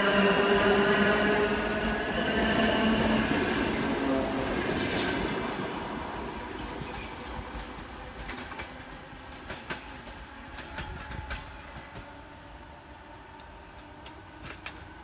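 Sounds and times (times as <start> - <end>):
train rumble and rail noise: 0.0 - 15.0
hiss burst: 4.8 - 5.4
wheels clicking over rail joints: 6.6 - 12.4, 13.3 - 15.0.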